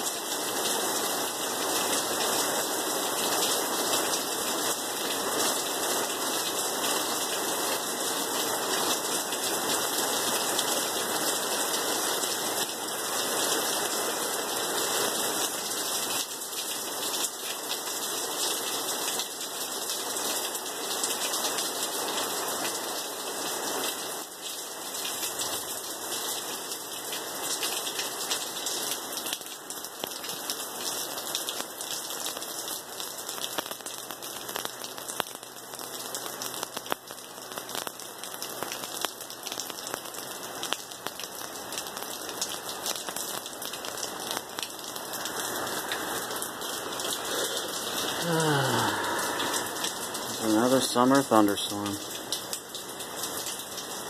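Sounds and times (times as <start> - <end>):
heavy rain on concrete: 0.0 - 54.0.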